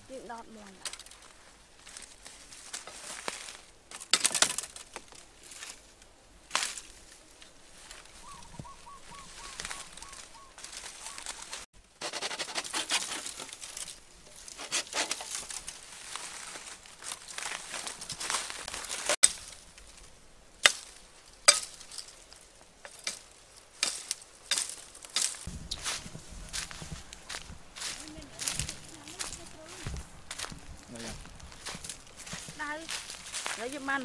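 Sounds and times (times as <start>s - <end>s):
dry leaves crackling underfoot: 0.0s - 11.7s, 12.4s - 34.0s
bird calling short notes: 8.2s - 11.6s
knife chopping bamboo: 14.6s - 15.5s.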